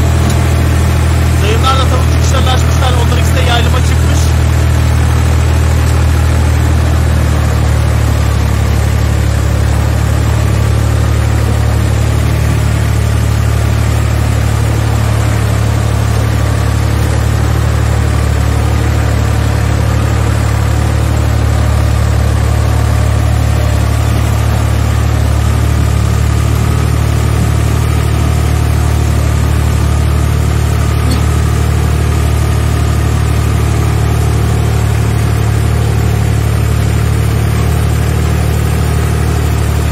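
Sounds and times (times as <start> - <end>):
tractor engine running: 0.0 - 39.9.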